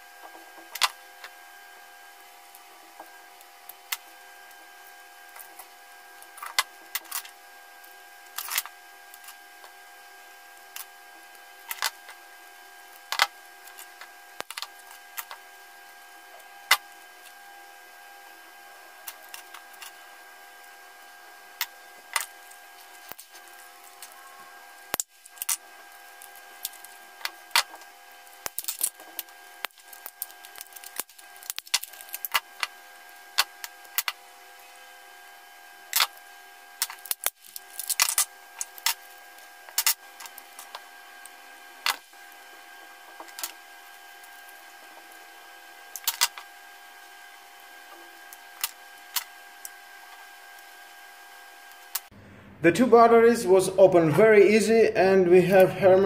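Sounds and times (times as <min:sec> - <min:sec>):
faint steady hum: 0:00.0 - 0:56.0
battery cells clicking and tapping: 0:02.5 - 0:09.8, 0:10.6 - 0:17.4, 0:19.0 - 0:34.9, 0:35.8 - 0:36.2, 0:36.8 - 0:50.7.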